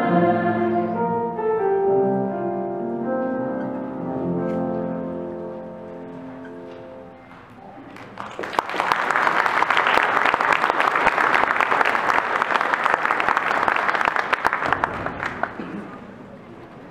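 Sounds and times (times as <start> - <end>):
choir and piano chord: 0.0 - 7.1
audience applause: 7.9 - 16.1.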